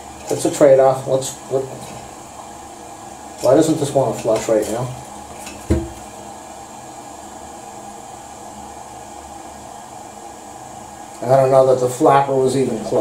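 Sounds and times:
toilet cistern hissing: 0.0s - 9.0s
dull knock: 5.7s - 6.0s.

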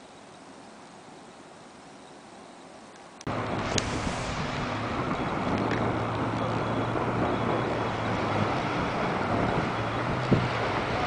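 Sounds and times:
wind: 0.0s - 11.0s
surf breaking on rocks: 3.3s - 11.0s.

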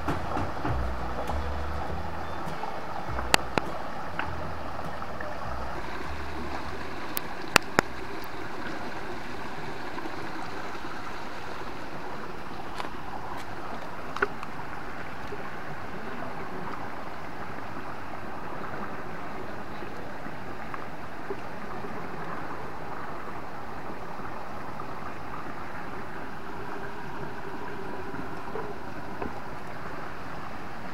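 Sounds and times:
stream water flowing: 0.0s - 30.9s.

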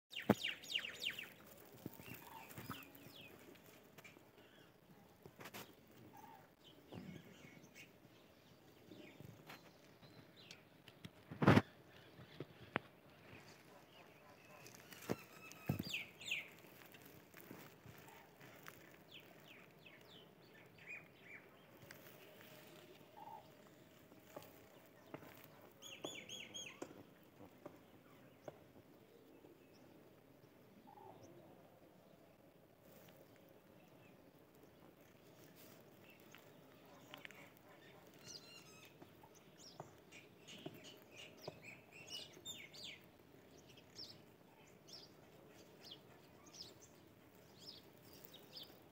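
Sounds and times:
small bird chirping: 0.1s - 4.9s, 11.4s - 27.0s, 35.0s - 48.9s
rabbits rustling and clicking: 1.0s - 4.2s, 14.4s - 19.8s, 34.9s - 41.5s
faint bird chirps: 11.4s - 16.6s, 36.0s - 43.0s.

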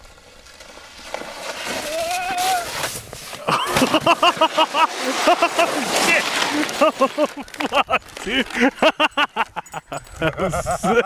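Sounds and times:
sled sliding over snow: 0.0s - 11.0s
person yelling: 1.9s - 2.7s
hearty laughter: 3.4s - 11.0s.

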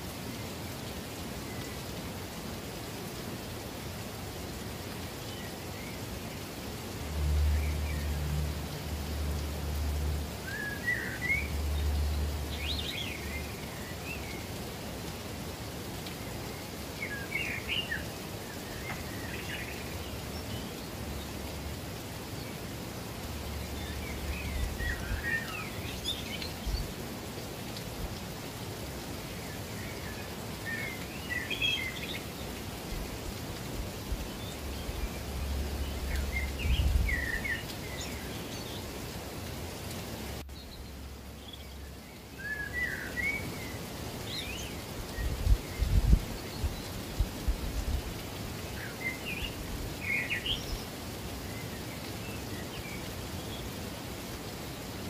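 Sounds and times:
rushing water: 0.0s - 55.0s
songbird singing: 0.1s - 55.0s.

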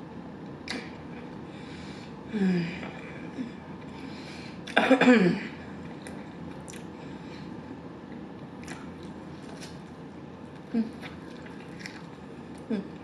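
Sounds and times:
quiet chewing: 5.8s - 7.0s, 8.1s - 13.0s.

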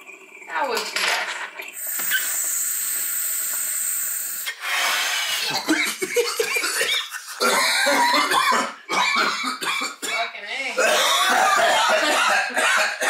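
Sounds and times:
man coughing: 5.5s - 10.2s, 10.8s - 13.0s.

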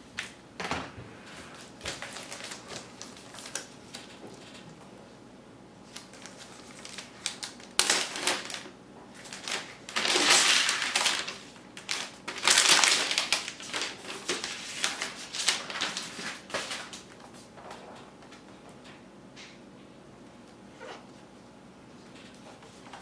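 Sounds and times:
plastic wrap crinkling: 1.5s - 4.8s, 5.8s - 17.5s.

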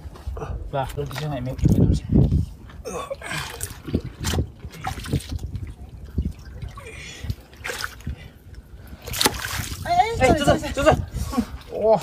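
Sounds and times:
trickling water: 0.4s - 12.0s
hands splashing in muddy water: 9.0s - 10.0s.

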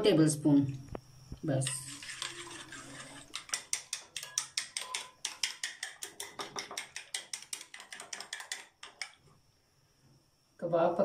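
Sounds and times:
spoon clinking in glass bowl: 1.7s - 9.2s.

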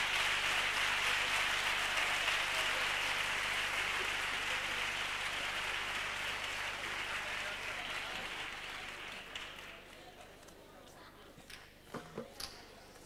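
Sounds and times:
audience applauding: 0.0s - 10.3s.

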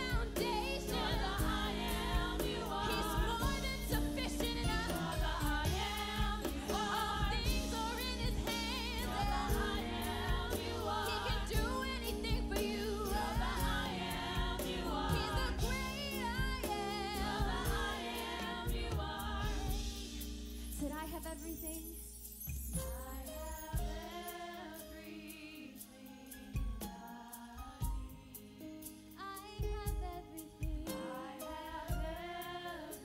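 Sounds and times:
gospel music with singing: 0.0s - 33.0s.

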